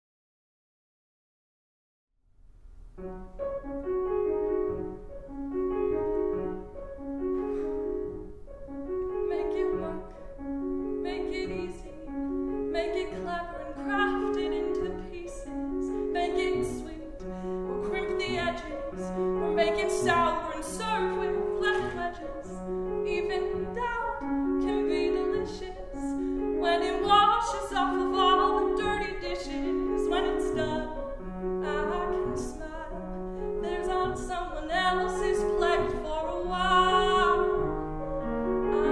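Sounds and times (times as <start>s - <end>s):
grand piano: 2.4s - 38.9s
woman singing: 9.2s - 10.2s, 11.0s - 37.8s, 38.6s - 38.9s.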